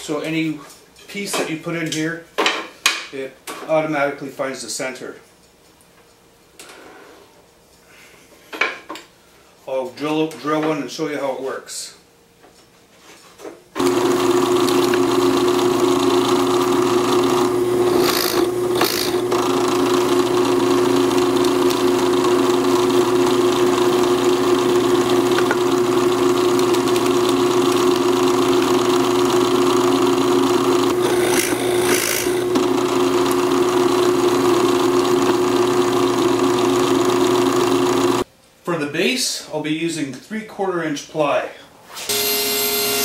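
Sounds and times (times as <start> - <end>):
drill bit rasping into wood: 13.8 - 38.2
drill press motor humming: 13.8 - 38.2.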